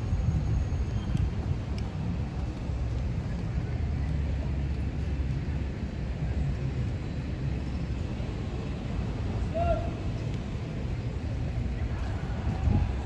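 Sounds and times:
low rumble of city ambience: 0:00.0 - 0:13.0.

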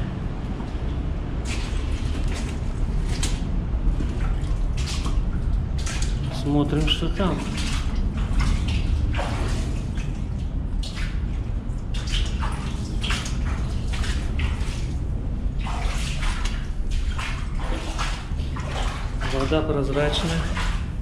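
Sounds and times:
steady low rumble: 0:00.0 - 0:21.0
footsteps splashing in water: 0:00.5 - 0:21.0.

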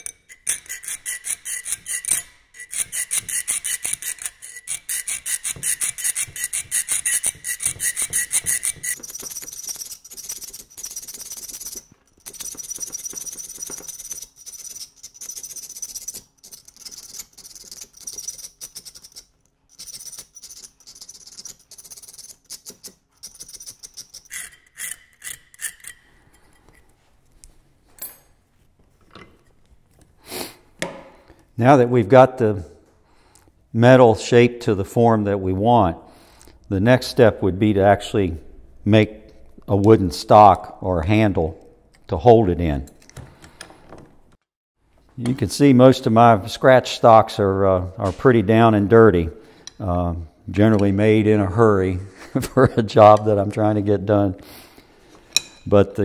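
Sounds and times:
file rasping on steel: 0:00.0 - 0:11.8.

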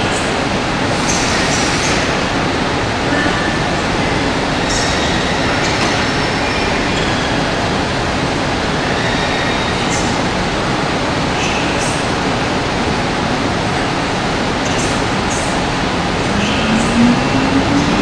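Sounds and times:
locomotive equipment rushing noise: 0:12.6 - 0:18.0.

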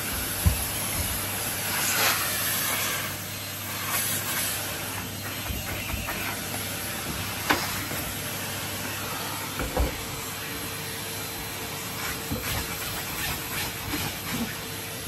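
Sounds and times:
vacuum brush knocking on bed: 0:00.0 - 0:01.3, 0:05.3 - 0:08.1, 0:09.6 - 0:10.1
vacuum cleaner running: 0:00.0 - 0:15.0.

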